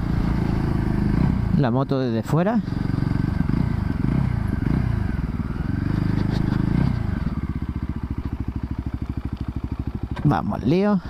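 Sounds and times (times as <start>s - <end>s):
motorcycle engine slowing to idle: 0.0s - 11.0s.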